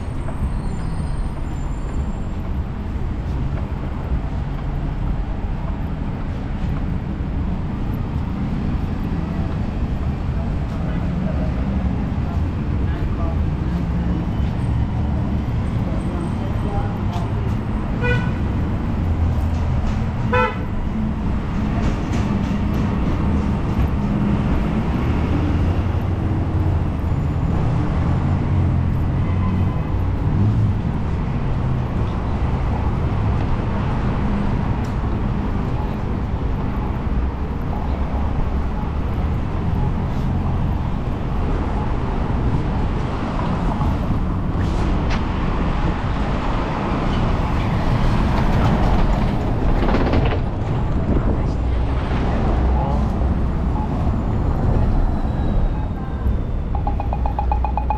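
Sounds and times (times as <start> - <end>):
passing cars: 0.0 - 57.9
car horn toot: 18.0 - 18.4, 20.3 - 20.7.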